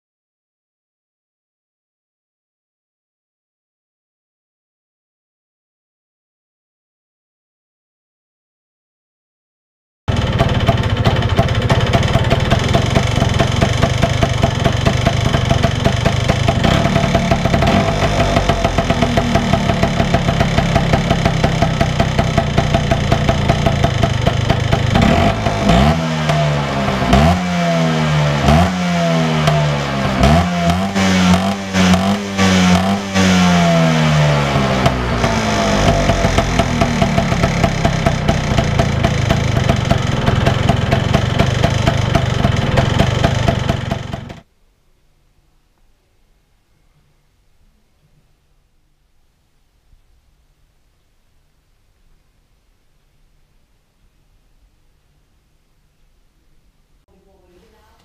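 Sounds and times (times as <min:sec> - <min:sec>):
scooter engine idling and revving: 0:10.1 - 0:44.5.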